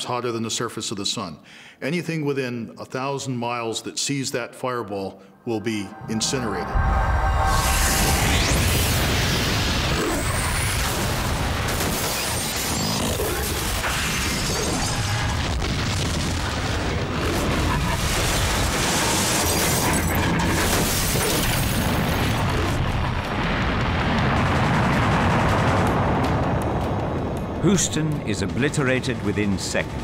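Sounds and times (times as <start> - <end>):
explosion rumbling boom: 5.8 - 12.4, 13.6 - 28.3.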